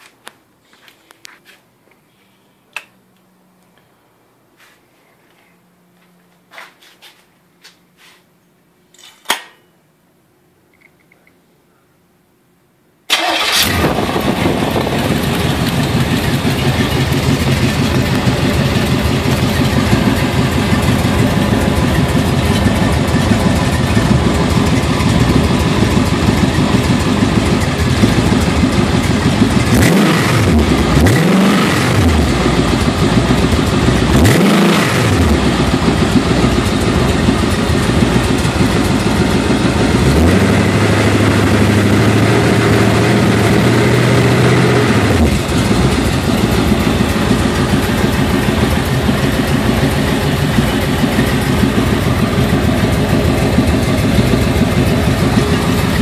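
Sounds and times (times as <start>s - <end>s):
engine running and revving: 13.5s - 56.0s.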